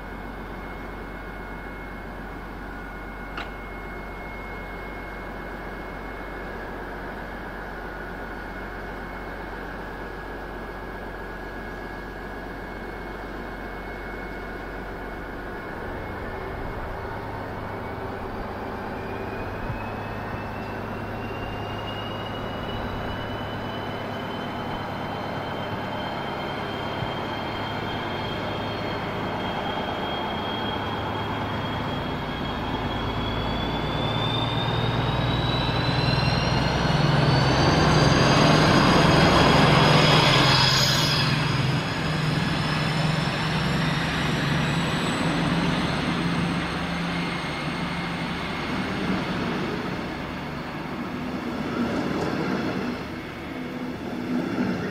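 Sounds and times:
diesel locomotive engine: 0.0 - 54.9
rising whine: 0.0 - 54.9.

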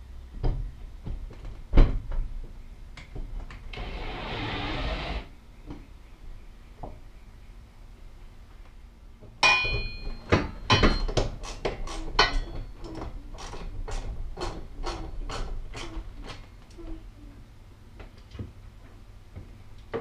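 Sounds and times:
metal clank with ringing: 9.4 - 11.2, 12.2 - 13.0.

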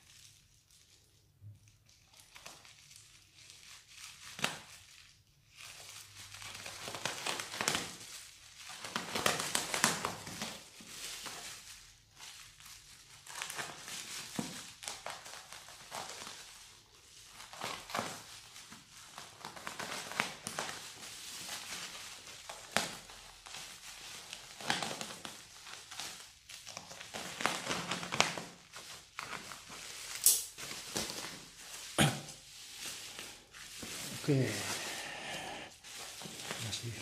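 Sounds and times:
plastic crinkling and rustling: 0.0 - 37.0
short sharp snaps: 30.2 - 30.5.

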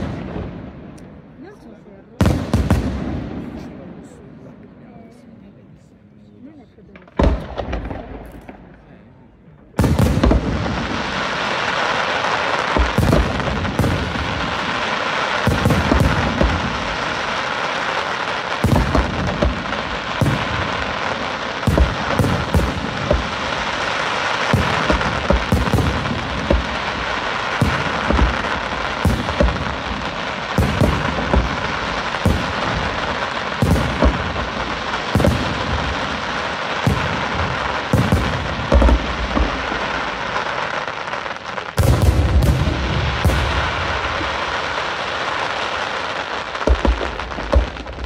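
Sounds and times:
firework shells bursting: 9.8 - 48.0.

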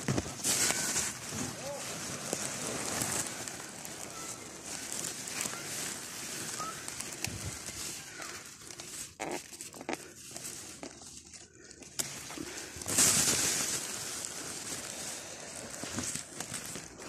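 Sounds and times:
plants rustling: 0.0 - 17.0
stalks snapping: 11.8 - 12.6.

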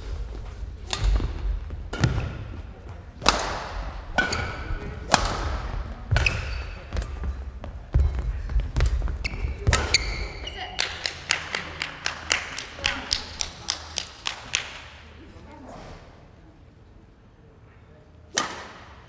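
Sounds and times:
rackets hitting shuttlecock: 0.8 - 2.6, 3.2 - 7.2, 8.8 - 14.9, 18.3 - 19.0
shoes squeaking on court: 4.2 - 4.8, 6.1 - 10.8.

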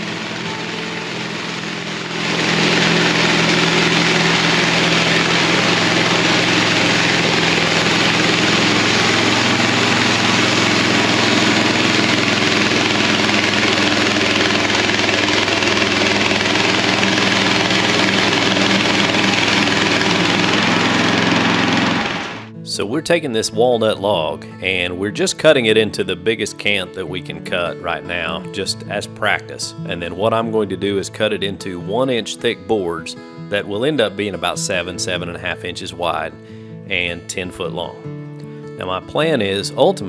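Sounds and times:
band blade sawing log: 0.0 - 22.5
engine drone: 0.0 - 22.6.

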